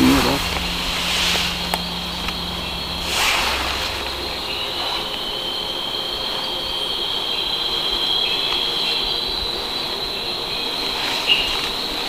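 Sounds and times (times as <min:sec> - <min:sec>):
night insects droning: 0:00.0 - 0:12.0.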